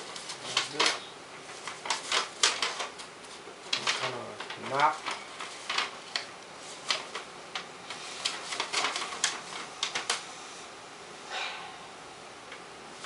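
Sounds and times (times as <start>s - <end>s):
paper rustling and crinkling: 0.0s - 10.2s.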